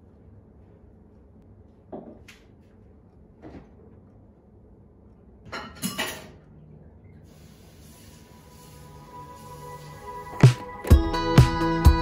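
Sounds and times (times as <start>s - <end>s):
dishes clinking and clattering: 5.5s - 6.5s
background music: 8.8s - 12.0s.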